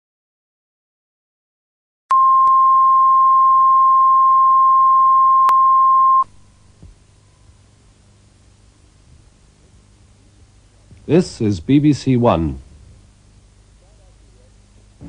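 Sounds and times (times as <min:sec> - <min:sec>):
steady test tone: 0:02.1 - 0:06.3
faint hiss and hum: 0:02.2 - 0:15.0.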